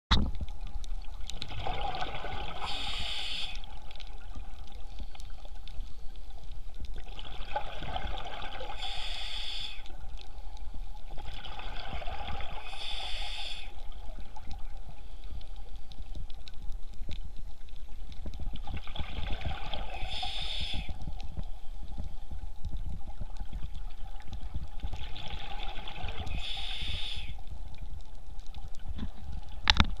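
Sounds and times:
bubbling: 0.1 - 9.1, 9.7 - 30.0
diver breathing through regulator: 2.6 - 3.7, 8.7 - 9.9, 12.6 - 13.8, 19.9 - 21.0, 26.2 - 27.4
low underwater rumble: 13.8 - 26.5.

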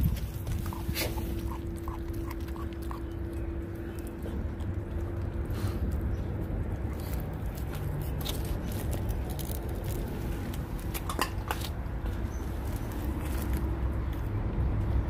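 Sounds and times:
low hum: 0.0 - 10.9
puppy chewing bone: 0.0 - 14.9.

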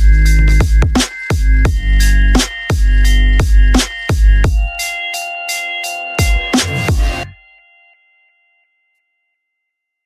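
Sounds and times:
deep sliding bass notes: 0.0 - 4.6
electronic music: 0.0 - 7.5.

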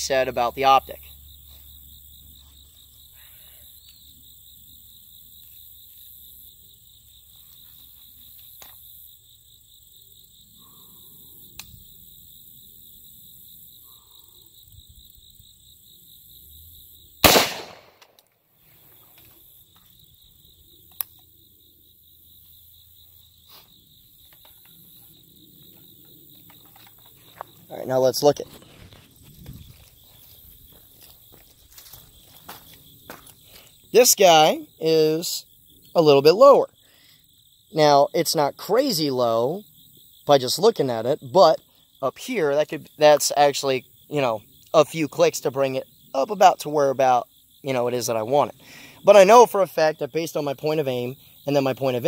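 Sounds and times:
rifle shot with echo: 17.2 - 18.2.

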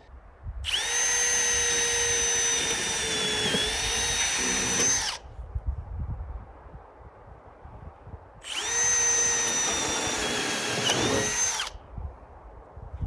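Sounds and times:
power drill drilling steel: 0.7 - 5.2, 8.4 - 11.8.

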